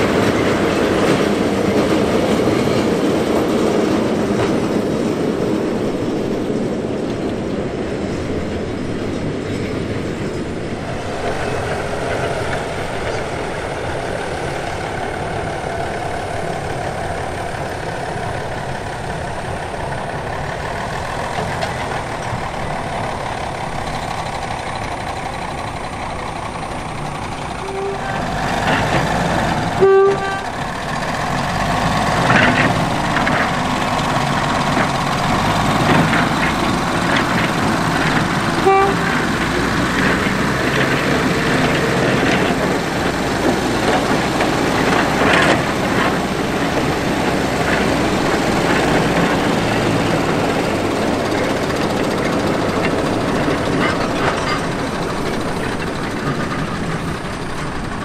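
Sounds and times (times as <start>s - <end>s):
diesel locomotive running: 0.0s - 58.0s
locomotive horn toots: 27.5s - 30.7s, 38.5s - 39.6s.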